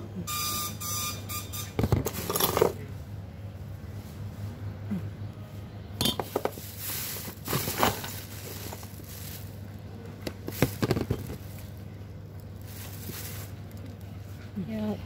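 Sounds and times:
plastic bag crinkling: 6.4 - 14.4.

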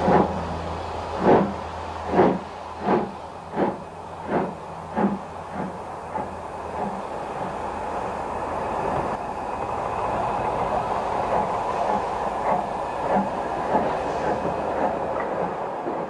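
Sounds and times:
steam train rolling: 0.0 - 16.0.

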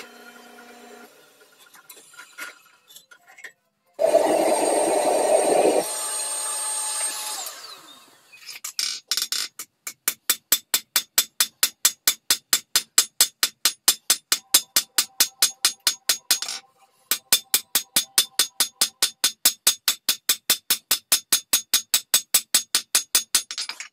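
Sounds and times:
machine running noise: 4.0 - 6.0.

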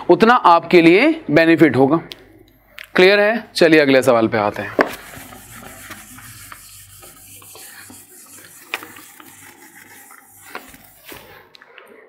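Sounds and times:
eraser rubbing on whiteboard: 4.8 - 11.5.

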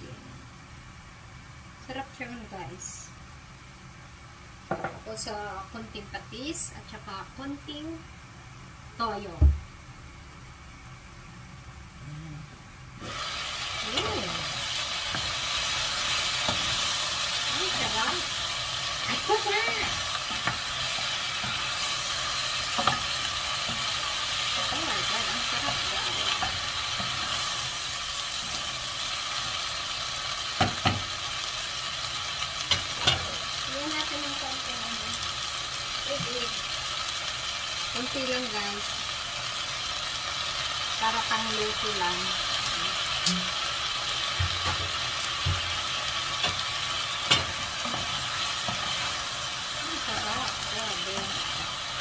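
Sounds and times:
vegetables sizzling in saucepan: 0.0 - 12.2, 12.8 - 52.0
wooden spatula knocking on pan: 30.6 - 31.1, 44.4 - 45.8.

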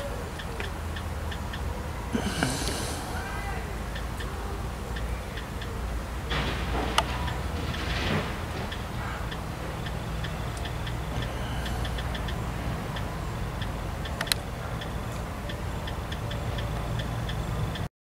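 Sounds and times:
faint high ticking: 0.0 - 6.1, 8.6 - 17.9
steady low rumble: 2.0 - 17.8
sharp click: 14.0 - 14.9.

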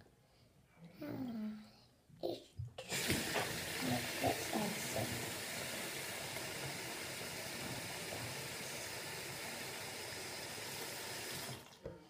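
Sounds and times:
tap water running into sink: 2.8 - 12.0.

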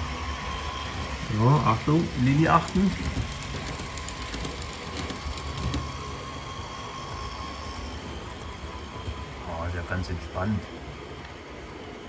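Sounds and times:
faint steady whine: 0.0 - 12.0
model train rolling rumble: 0.0 - 12.0
wheels clicking over rail joints: 2.2 - 6.2.

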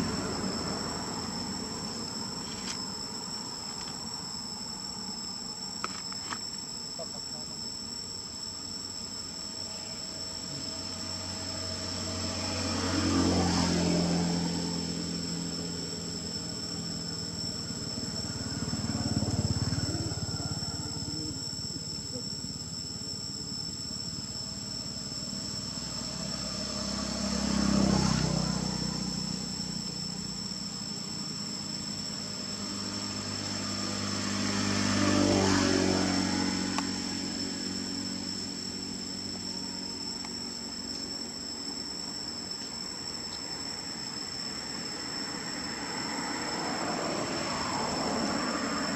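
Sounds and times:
distant vehicles passing: 0.0 - 3.5, 10.6 - 22.8, 24.8 - 42.0, 42.9 - 48.9
forest insects droning: 0.0 - 48.9.

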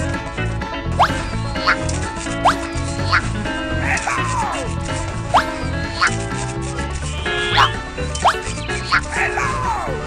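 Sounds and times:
playful background music: 0.0 - 10.0
upward-gliding comic sound effects: 1.0 - 1.8, 2.4 - 3.3, 5.4 - 6.1.

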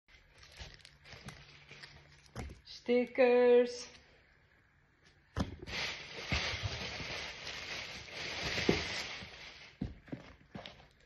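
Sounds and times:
packaging rustling: 0.1 - 2.4, 5.6 - 9.9.

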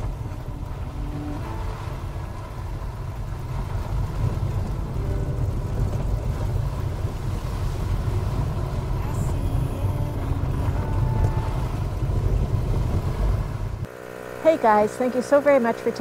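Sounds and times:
wind buffeting microphone: 0.0 - 13.9
off-road vehicle rumble: 0.0 - 16.0.

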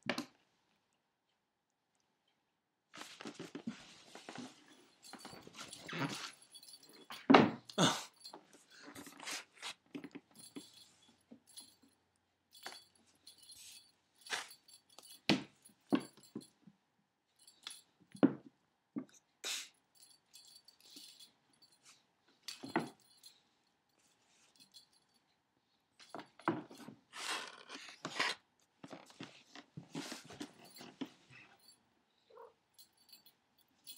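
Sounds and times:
cats playing on hardwood floor: 3.0 - 7.6, 26.1 - 31.7.

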